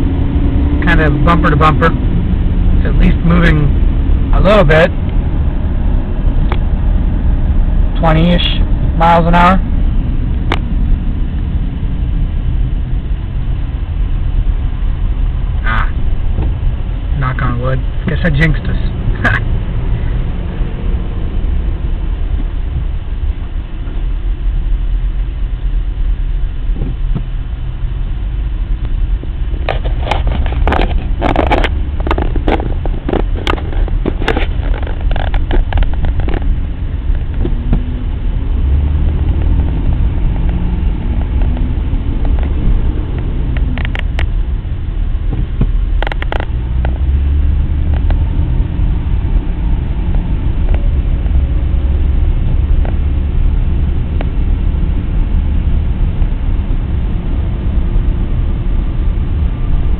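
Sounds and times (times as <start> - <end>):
car engine and tyres rumbling: 0.0 - 59.9
sharp clicks and knocks: 29.6 - 37.9, 41.2 - 44.4, 45.3 - 47.0.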